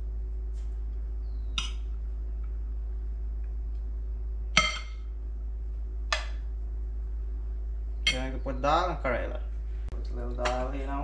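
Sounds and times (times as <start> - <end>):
low hum: 0.0 - 11.0
spoon clinking on ceramic dish: 4.6 - 5.0, 8.1 - 8.3.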